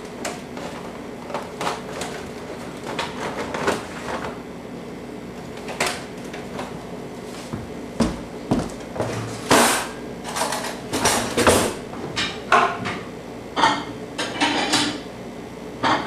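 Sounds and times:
kitchen objects clattering: 0:00.2 - 0:04.4, 0:09.0 - 0:13.0, 0:13.6 - 0:15.0.

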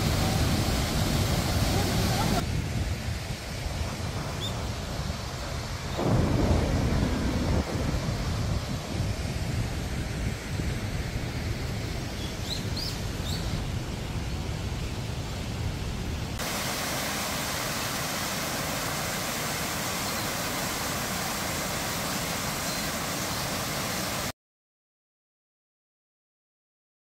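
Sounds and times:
wind rumbling on microphone: 0:00.0 - 0:18.1
water tumbling over cascade: 0:00.0 - 0:24.3.

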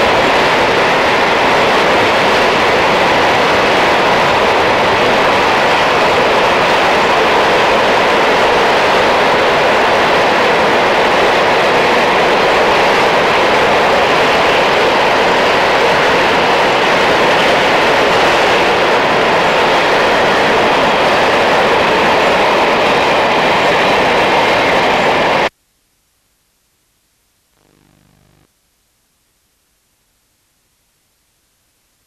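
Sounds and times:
train wheels running on rail: 0:00.0 - 0:25.5.

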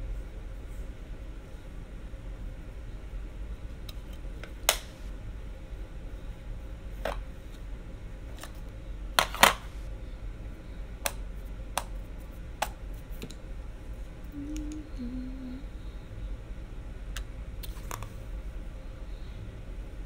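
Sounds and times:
makeup cases clicking and tapping: 0:09.2 - 0:09.6
woman humming: 0:14.3 - 0:16.0.

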